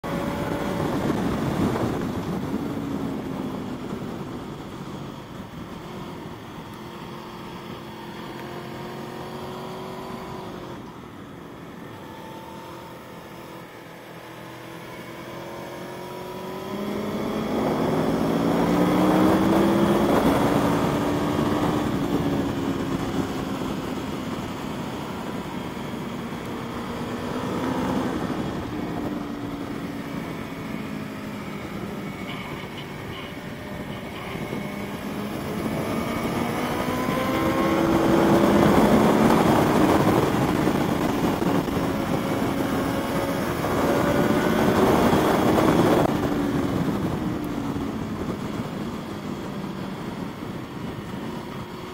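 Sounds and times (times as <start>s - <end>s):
motorcycle engine at speed: 0.0s - 51.9s.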